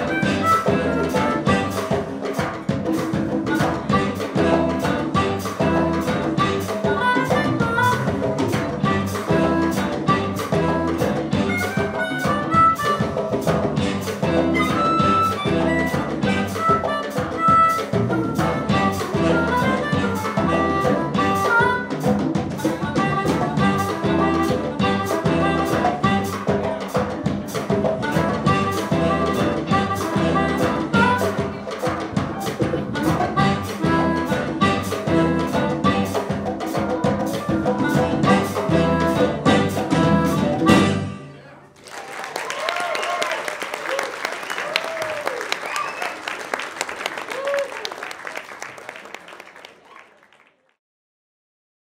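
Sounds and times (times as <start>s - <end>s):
harmonica: 0.0s - 2.3s, 3.4s - 26.8s, 28.0s - 31.7s, 32.8s - 41.4s
saxophone: 0.0s - 2.7s, 3.4s - 27.2s, 27.8s - 41.6s
electric bass: 0.0s - 41.2s
drum kit: 0.0s - 41.3s.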